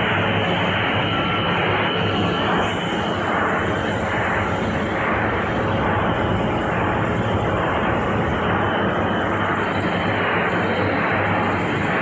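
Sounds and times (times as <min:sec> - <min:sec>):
production line machinery din: 0:00.0 - 0:12.0
low hum: 0:02.3 - 0:11.1.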